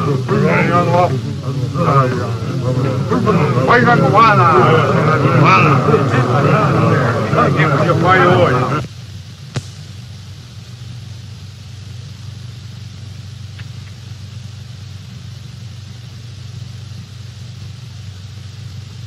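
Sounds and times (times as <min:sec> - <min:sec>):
film soundtrack hum and hiss: 0:00.0 - 0:19.0
faint click: 0:13.5 - 0:14.0.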